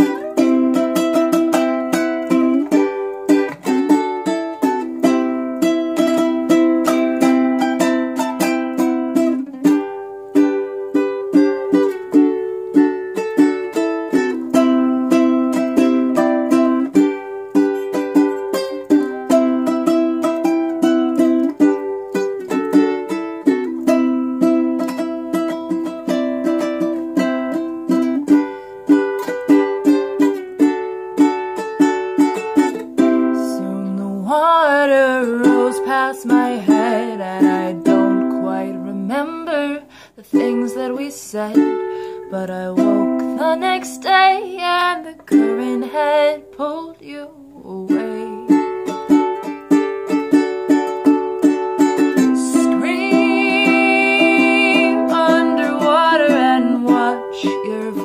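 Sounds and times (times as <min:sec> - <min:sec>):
ukulele strumming: 0:00.0 - 0:58.0
woman singing: 0:33.0 - 0:49.0, 0:52.0 - 0:58.0.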